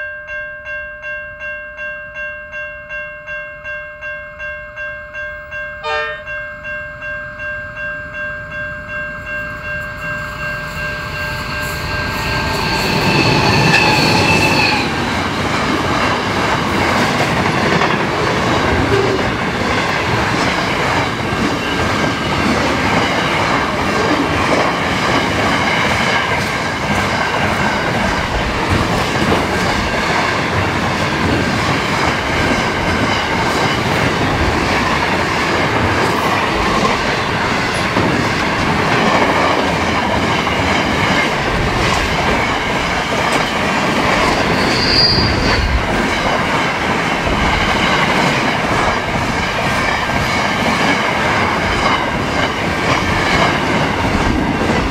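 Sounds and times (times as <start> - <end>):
bell-like warning chime: 0.0 - 14.8
high ringing tones: 0.0 - 15.1, 44.3 - 46.4
train wheels rumbling on rails: 8.9 - 54.9.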